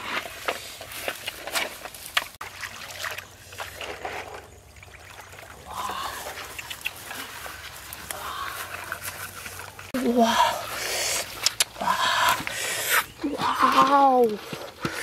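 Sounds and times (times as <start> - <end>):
water sloshing and splashing: 0.0 - 10.0.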